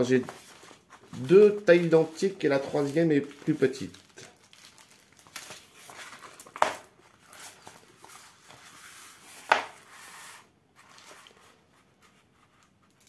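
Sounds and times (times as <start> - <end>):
canvas rustling and crinkling: 0.0 - 9.8.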